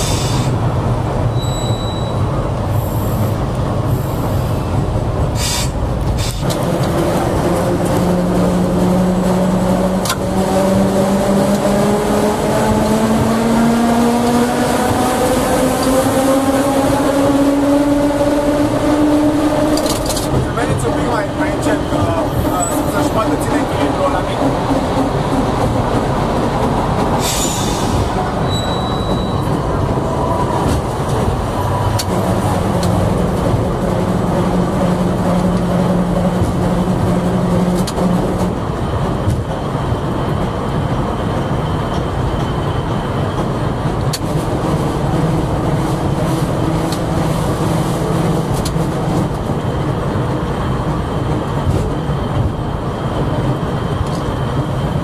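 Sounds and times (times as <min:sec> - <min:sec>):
tram rolling on rails: 0:00.0 - 0:55.0
high squeal: 0:01.3 - 0:03.2, 0:27.2 - 0:30.6.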